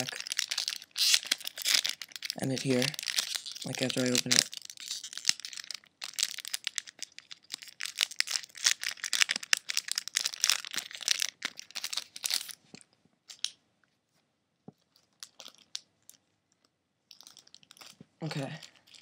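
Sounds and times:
foil wrapper tearing and crinkling: 0:00.0 - 0:12.6, 0:17.2 - 0:19.0.

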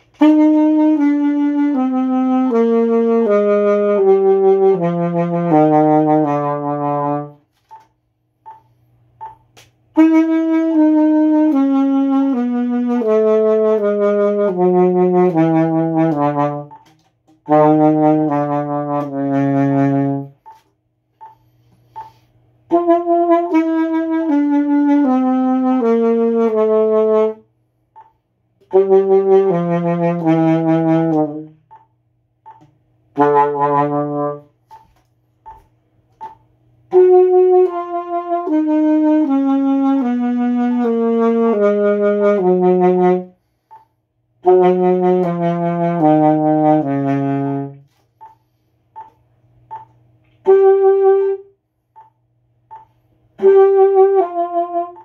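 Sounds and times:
saxophone held notes: 0:00.0 - 0:07.4, 0:10.0 - 0:20.6, 0:21.2 - 0:27.5, 0:28.7 - 0:31.6, 0:33.1 - 0:34.8, 0:36.8 - 0:43.8, 0:49.7 - 0:51.6, 0:53.3 - 0:55.0
faint metronome beeps: 0:07.6 - 0:09.5, 0:20.2 - 0:22.3, 0:27.9 - 0:28.8, 0:31.6 - 0:32.8, 0:34.1 - 0:36.5, 0:43.6 - 0:44.0, 0:48.1 - 0:50.2, 0:51.8 - 0:53.0
player breathing: 0:21.2 - 0:22.6.

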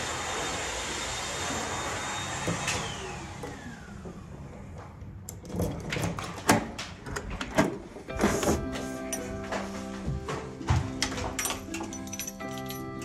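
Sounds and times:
vacuum cleaner winding down: 0:00.0 - 0:04.8.

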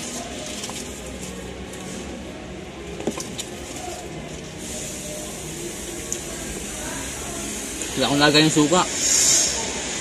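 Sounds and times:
steady background noise: 0:00.0 - 0:10.0.

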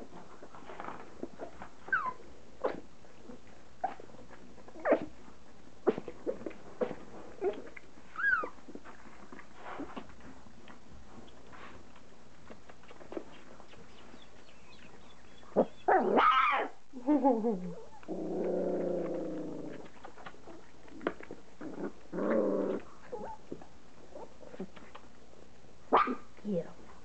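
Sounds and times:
puppies licking kibble clicks: 0:08.7 - 0:14.0, 0:19.8 - 0:21.5.

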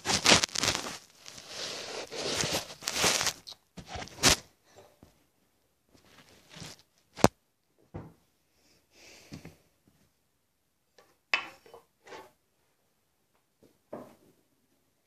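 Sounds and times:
rustling and knocking objects: 0:00.0 - 0:05.2, 0:05.9 - 0:08.2.

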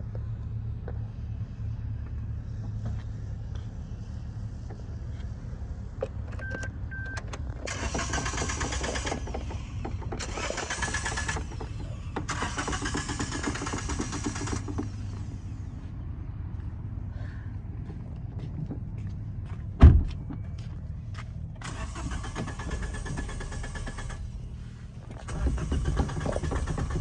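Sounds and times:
starter motor cranking engine: 0:07.3 - 0:15.4, 0:21.6 - 0:24.4, 0:25.1 - 0:27.0.

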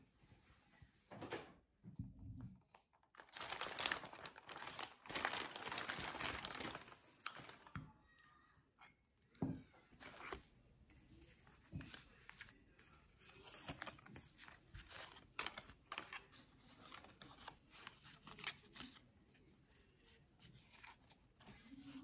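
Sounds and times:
wrapping paper crinkling: 0:03.0 - 0:07.8, 0:10.0 - 0:10.4, 0:11.4 - 0:19.0.

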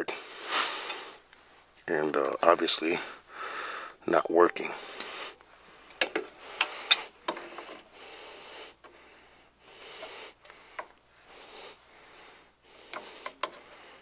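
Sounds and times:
person breathing: 0:02.9 - 0:04.0, 0:04.7 - 0:14.0.

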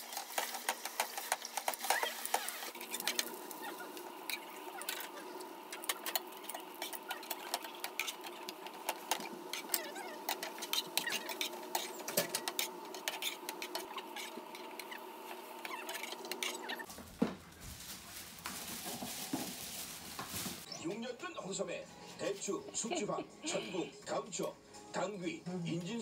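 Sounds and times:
food sizzling in hot oil: 0:00.0 - 0:16.9
metal spatula pressing and turning: 0:00.1 - 0:16.9.

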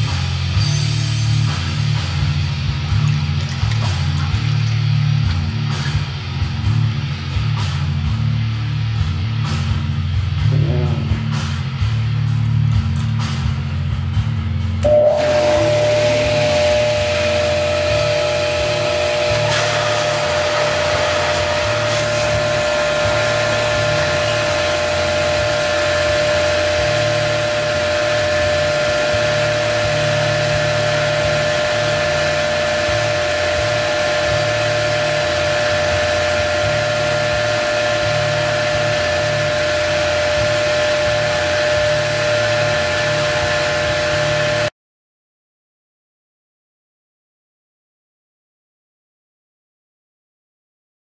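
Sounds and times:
motor humming and rushing: 0:14.9 - 0:44.7.

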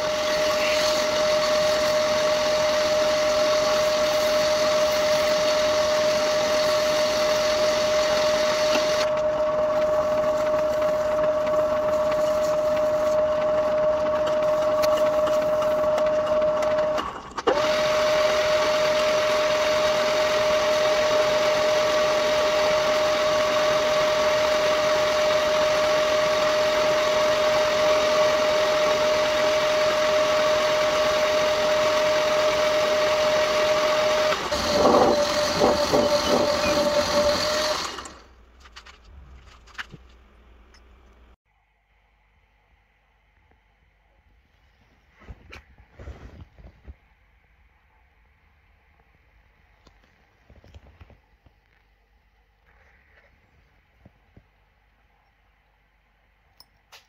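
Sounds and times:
metal lathe whining: 0:00.0 - 0:38.3.

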